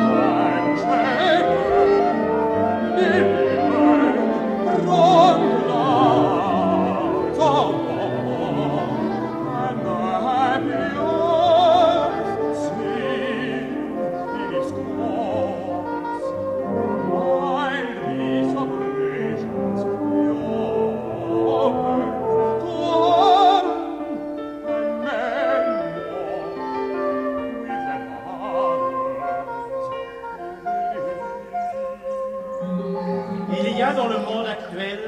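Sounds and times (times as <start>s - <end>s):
operatic voice singing: 0.0s - 24.1s, 32.6s - 35.0s
orchestral music: 0.0s - 35.0s.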